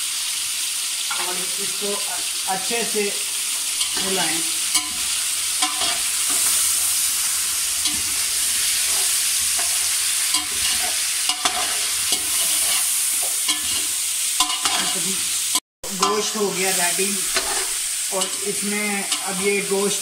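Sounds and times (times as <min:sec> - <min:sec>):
food sizzling in a pot: 0:00.0 - 0:20.0
metal spoon scraping a pot: 0:04.7 - 0:06.6, 0:08.8 - 0:15.0, 0:17.3 - 0:18.4.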